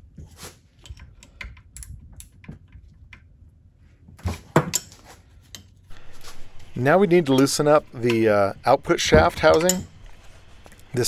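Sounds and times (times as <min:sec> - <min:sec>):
metallic knocks: 0:07.2 - 0:10.2.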